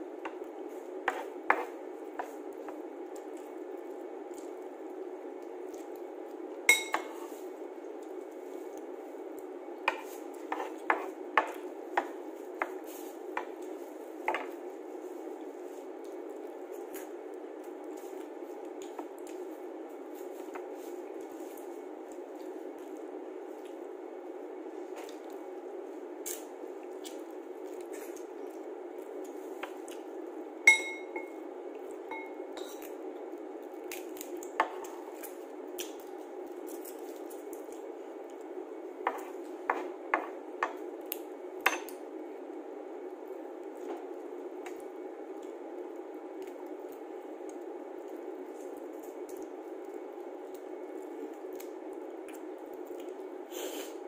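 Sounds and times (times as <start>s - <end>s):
steady low hum: 0.0s - 54.0s
clink against a dish: 6.7s - 7.2s, 30.7s - 31.3s.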